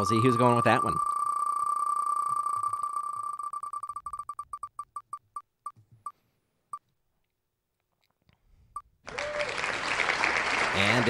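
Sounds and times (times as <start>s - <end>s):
prize wheel electronic ticks: 0.0s - 5.0s.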